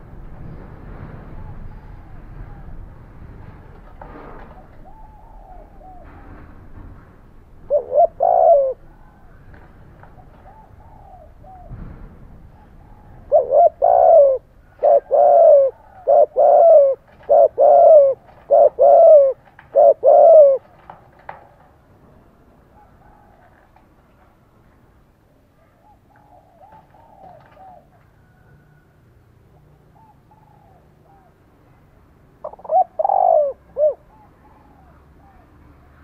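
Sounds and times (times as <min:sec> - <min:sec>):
dove cooing: 0:04.2 - 0:06.7, 0:07.6 - 0:20.8, 0:22.6 - 0:23.7, 0:25.6 - 0:28.9, 0:29.5 - 0:31.5, 0:32.4 - 0:35.9.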